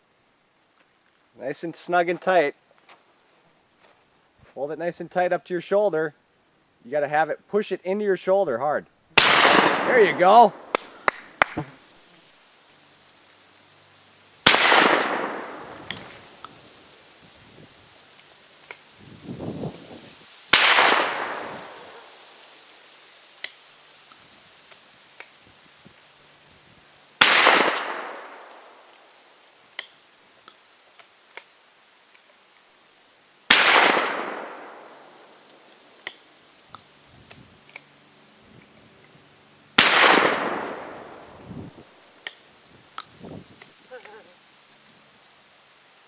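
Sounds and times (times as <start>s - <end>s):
shotgun blasts with echo: 9.2s - 11.7s, 14.4s - 16.1s, 20.5s - 22.1s, 27.2s - 28.7s, 33.5s - 35.0s, 39.8s - 41.2s
shotgun action metallic clicks: 15.7s - 16.6s.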